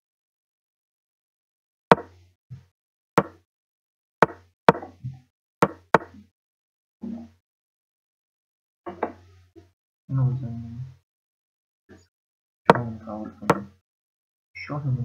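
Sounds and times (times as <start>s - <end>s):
sharp wooden knocks: 1.9s - 2.2s, 3.2s - 3.4s, 4.2s - 6.2s.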